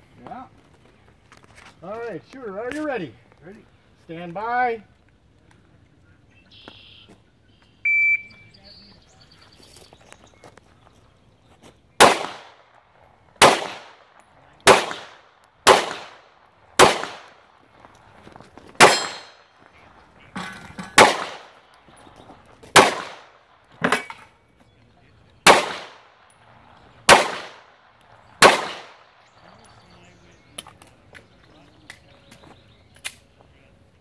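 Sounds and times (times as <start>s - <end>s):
handgun shots with echo: 12.0s - 12.6s, 13.4s - 17.4s, 18.8s - 19.4s, 20.8s - 21.6s, 22.7s - 24.3s, 25.4s - 26.1s, 27.1s - 27.7s, 28.4s - 29.0s
bullets ringing on steel targets: 18.8s - 19.4s.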